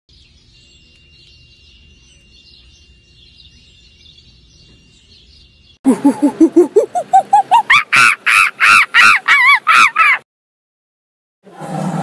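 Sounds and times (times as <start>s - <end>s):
distant bird chirps: 0.1s - 10.1s
loud rising calls: 5.9s - 10.2s.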